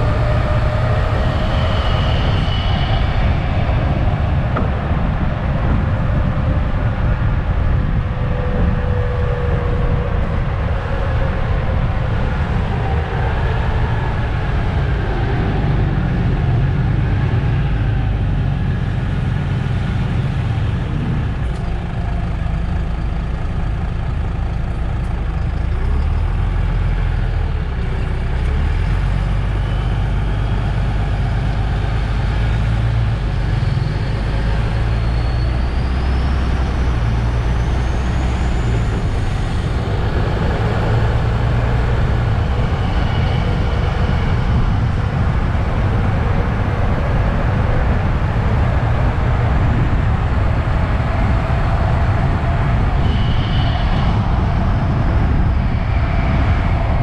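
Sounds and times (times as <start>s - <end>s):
bus diesel engine rumbling: 0.0s - 57.0s
faint high whine: 0.0s - 57.0s.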